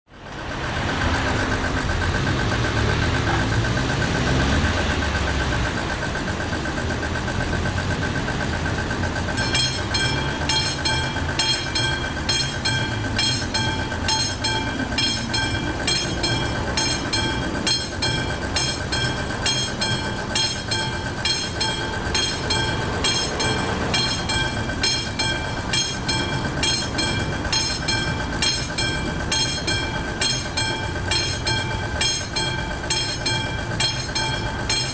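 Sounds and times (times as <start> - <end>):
road vehicle rumbling past: 0.1 - 34.9
repeating metallic ringing: 1.1 - 34.9
level crossing bell ringing: 9.3 - 34.9.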